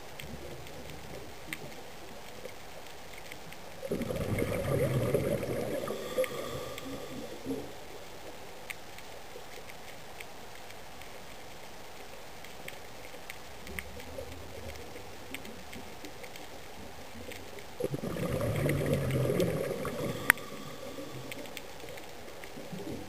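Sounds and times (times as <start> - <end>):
faint clicks: 0.0 - 23.0
underwater low hiss: 0.1 - 23.0
bubbling exhaled breath: 3.8 - 7.9, 17.8 - 23.0.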